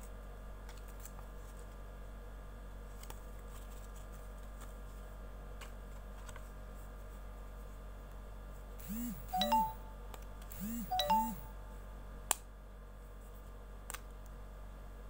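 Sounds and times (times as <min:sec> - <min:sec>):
short electronic chimes: 0:08.9 - 0:10.0, 0:10.6 - 0:11.8.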